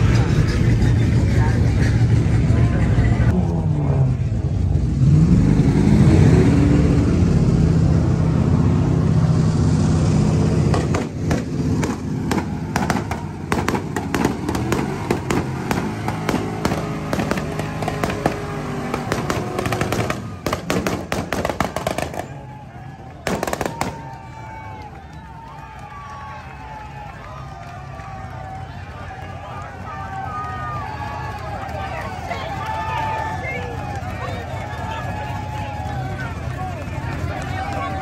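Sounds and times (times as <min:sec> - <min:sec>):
car engine revving: 0:00.0 - 0:22.5
crowd voices: 0:00.0 - 0:38.0.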